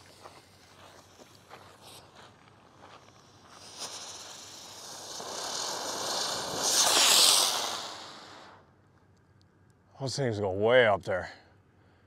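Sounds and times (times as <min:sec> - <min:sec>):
firework hissing: 0:00.0 - 0:08.7.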